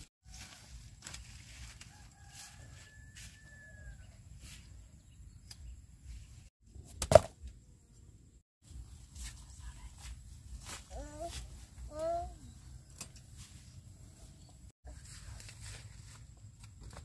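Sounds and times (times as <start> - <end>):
leaves and vines rustling: 0.0 - 3.5, 8.7 - 17.0
rooster crowing: 1.9 - 4.2.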